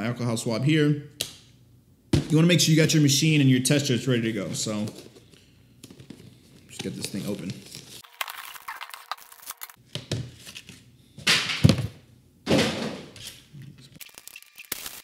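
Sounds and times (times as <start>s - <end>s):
plastic packaging rustling: 4.8s - 9.8s.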